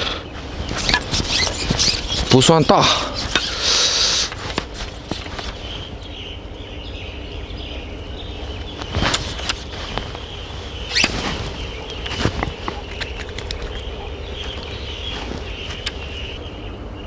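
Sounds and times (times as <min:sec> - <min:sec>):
steady low rumble: 0:00.0 - 0:17.0
fish flapping in dry grass: 0:00.4 - 0:06.1, 0:08.5 - 0:16.4.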